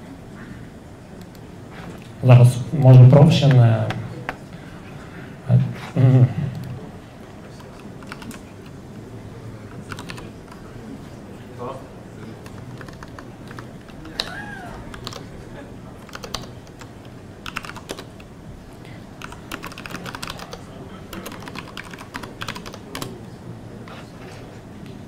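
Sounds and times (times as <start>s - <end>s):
low room hum: 0.0s - 25.0s
laptop keyboard typing: 7.5s - 8.6s, 9.7s - 10.6s, 12.2s - 15.3s, 16.0s - 18.3s, 19.2s - 23.1s.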